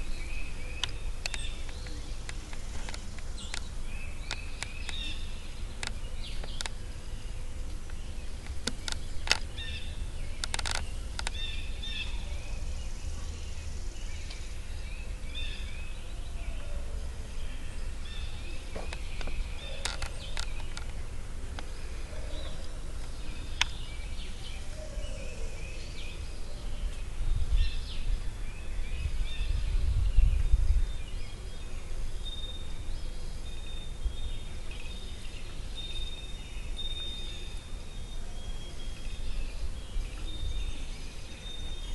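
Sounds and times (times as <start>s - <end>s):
small birds chirping: 0.0s - 41.9s
sharp clicks: 7.7s - 9.5s, 10.4s - 11.4s, 18.8s - 21.7s.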